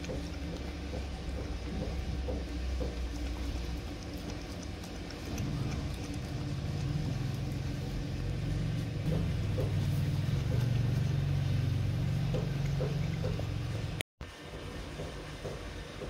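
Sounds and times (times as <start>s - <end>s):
dog lapping milk: 0.0s - 8.4s
low motor drone: 0.0s - 14.0s.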